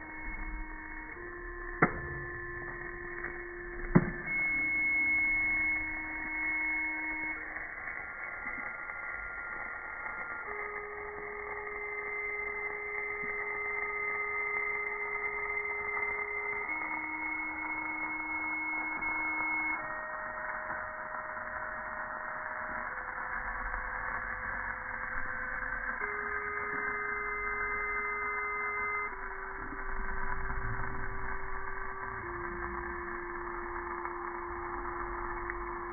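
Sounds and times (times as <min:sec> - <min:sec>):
electronic tones melody: 0:00.0 - 0:23.2, 0:25.9 - 0:35.9.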